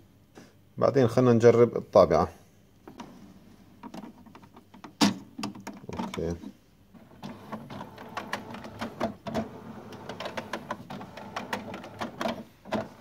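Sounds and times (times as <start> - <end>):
printer hum: 6.9 - 13.0
printer mechanism clicking: 7.2 - 13.0.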